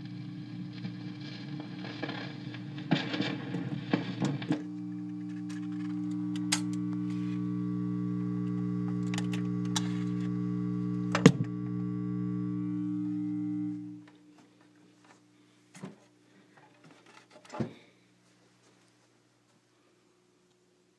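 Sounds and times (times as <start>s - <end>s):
record player amplifier hum: 0.0s - 20.9s
record player clicks: 1.7s - 7.2s, 8.4s - 12.0s.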